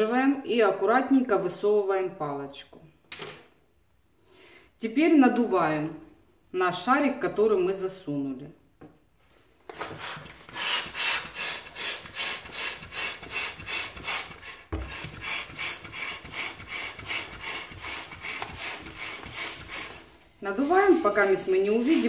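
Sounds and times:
balloon pump rasping air: 9.7s - 22.0s.

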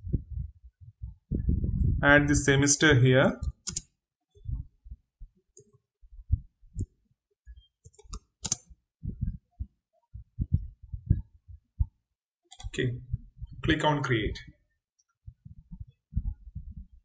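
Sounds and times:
typing on computer keyboard: 3.6s - 3.9s, 7.9s - 8.6s, 12.5s - 12.7s.

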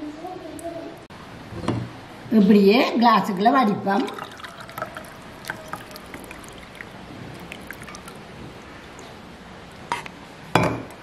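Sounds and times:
tea trickling through strainer: 3.2s - 9.2s
glass cup clink: 4.2s - 6.9s.

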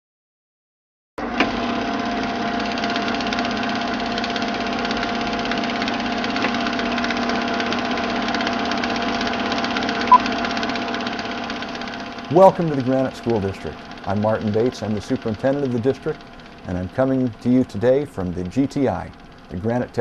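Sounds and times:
film projector whirring and clattering: 1.2s - 20.0s.

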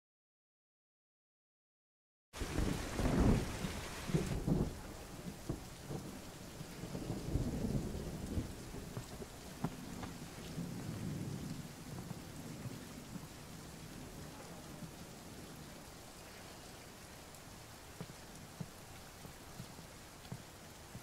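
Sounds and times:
thunder rolling: 2.4s - 16.0s
steady rain: 2.4s - 21.0s
sharp drips: 3.6s - 21.0s.

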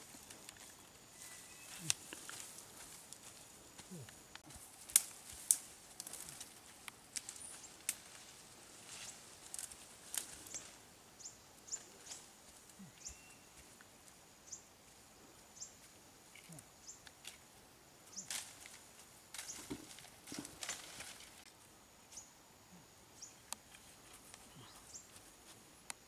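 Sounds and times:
footsteps through grass: 0.0s - 10.8s, 18.2s - 21.5s
twigs snapping: 4.4s - 8.2s, 8.9s - 10.7s, 18.2s - 21.5s.

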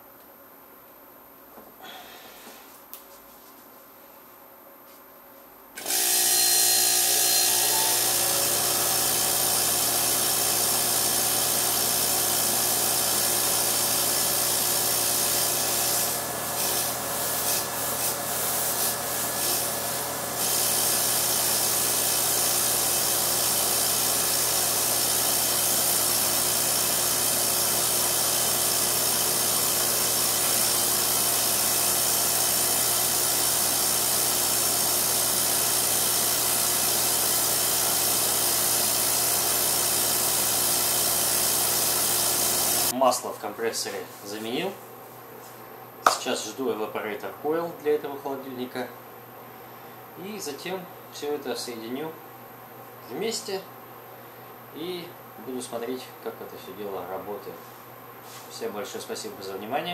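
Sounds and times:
vacuum pump running: 5.8s - 42.9s.

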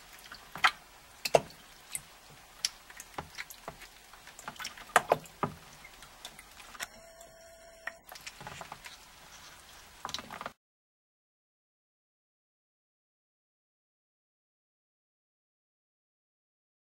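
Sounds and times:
ducklings splashing in water: 0.0s - 6.9s.

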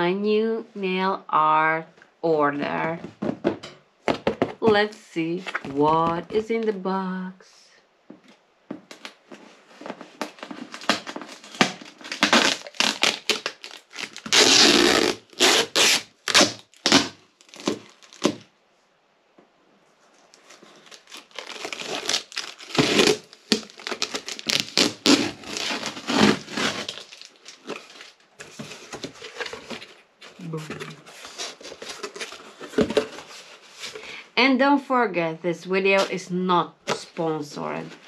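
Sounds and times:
packaging crinkling and tearing: 8.9s - 18.5s, 20.2s - 34.0s.

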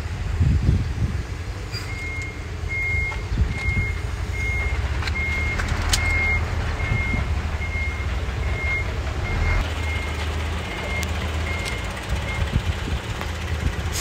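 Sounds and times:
low engine rumble: 0.0s - 14.0s
reverse warning beeps: 1.7s - 12.6s.

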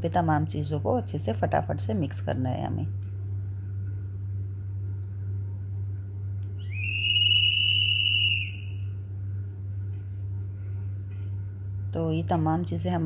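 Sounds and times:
steady low hum: 0.0s - 13.0s
high whistling tone gliding up: 6.6s - 8.9s.

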